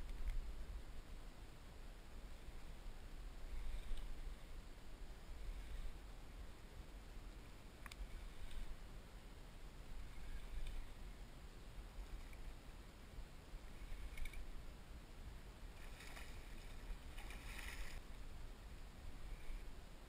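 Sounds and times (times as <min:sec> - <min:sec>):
faint low rumble: 0:00.0 - 0:20.0
water splashing: 0:15.7 - 0:18.0.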